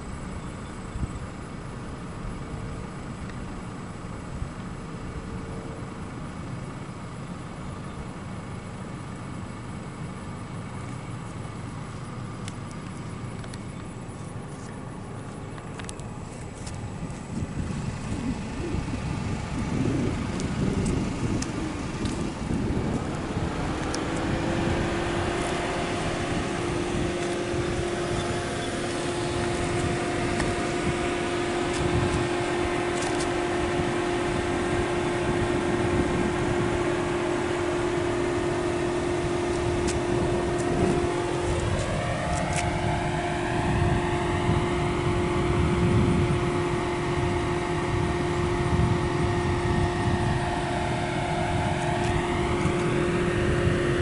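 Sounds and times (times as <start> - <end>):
propeller aircraft engine droning: 0.0 - 54.0
wind buffeting microphone: 15.8 - 54.0.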